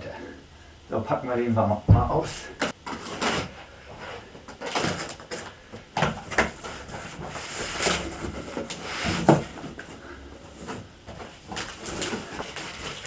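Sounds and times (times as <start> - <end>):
cardboard rubbing and scraping: 6.3 - 9.9.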